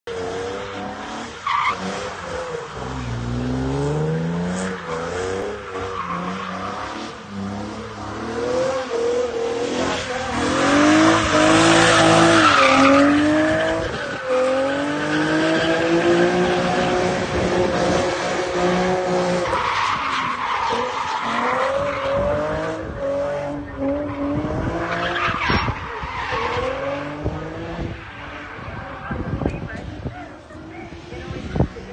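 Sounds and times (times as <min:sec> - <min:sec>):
car engine revving: 0:00.1 - 0:31.9.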